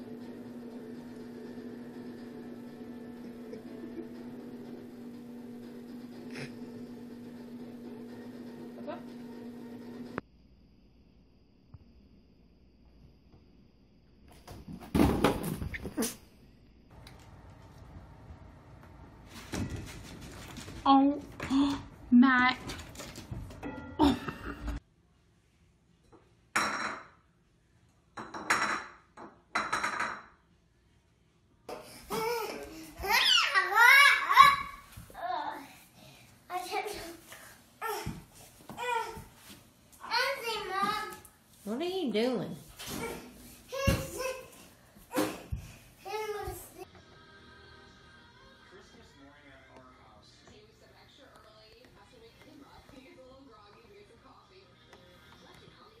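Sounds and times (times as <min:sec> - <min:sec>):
electrical hum: 0:00.0 - 0:11.4.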